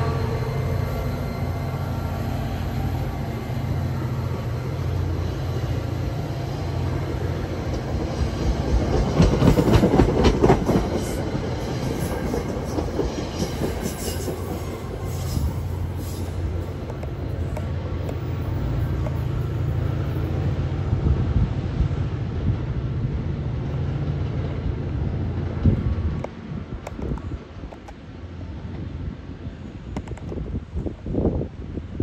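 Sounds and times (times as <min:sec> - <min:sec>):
train wheels rumbling on rail: 0:00.0 - 0:32.0.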